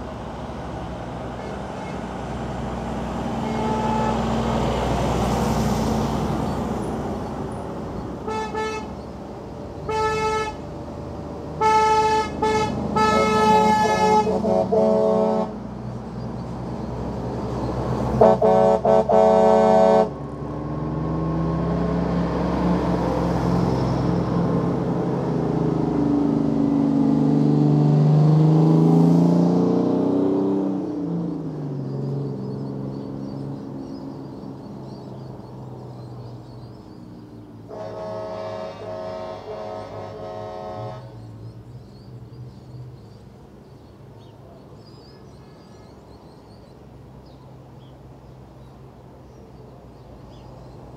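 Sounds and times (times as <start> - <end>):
heavy trucks driving past: 0.0 - 50.9
truck air horn blasts: 1.4 - 2.2, 3.3 - 4.5, 8.2 - 9.0, 9.8 - 10.6, 11.6 - 15.7, 18.1 - 20.2, 37.7 - 41.2.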